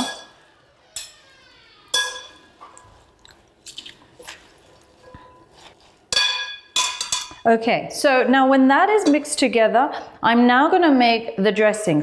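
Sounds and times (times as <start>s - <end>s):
utensils clinking against glass bowl: 1.9s - 2.9s, 6.1s - 7.4s.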